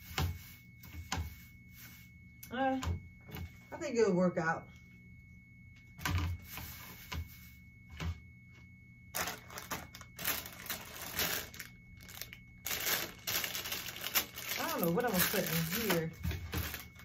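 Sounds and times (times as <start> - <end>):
plastic wrappers crinkling: 9.1 - 17.0.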